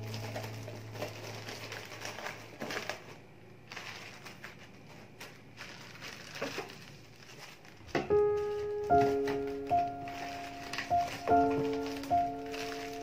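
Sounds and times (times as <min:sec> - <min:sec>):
background music: 0:00.0 - 0:01.9, 0:08.2 - 0:13.0
plastic bags rustling: 0:00.0 - 0:13.0.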